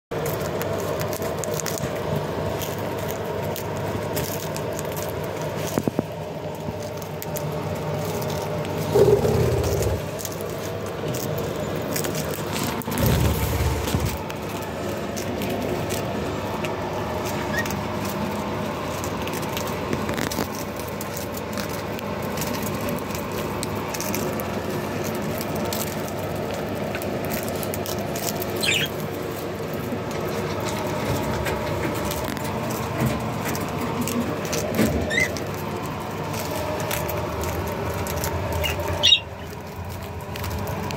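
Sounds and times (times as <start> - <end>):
budgerigars chattering: 28.6 - 28.9, 38.6 - 39.3.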